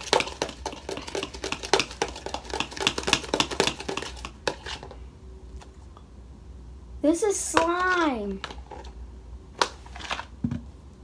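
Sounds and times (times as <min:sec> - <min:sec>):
slime being stirred: 0:00.0 - 0:05.0.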